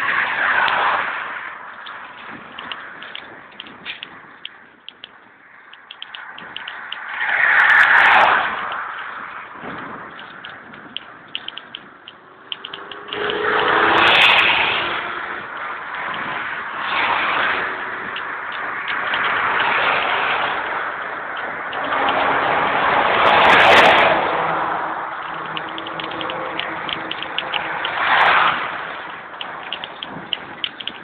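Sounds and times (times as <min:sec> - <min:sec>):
rushing noise: 0:00.0 - 0:31.0
rapid mechanical ticking: 0:01.7 - 0:07.1, 0:08.5 - 0:13.5, 0:18.0 - 0:22.3, 0:25.2 - 0:31.0.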